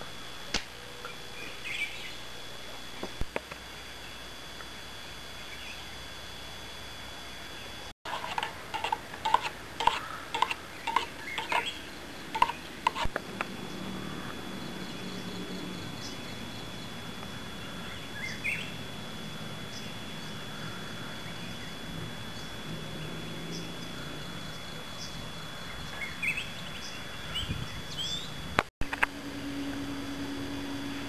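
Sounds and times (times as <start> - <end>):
thin high-pitched whine: 0.0 - 31.0
bird chirps: 17.6 - 18.8.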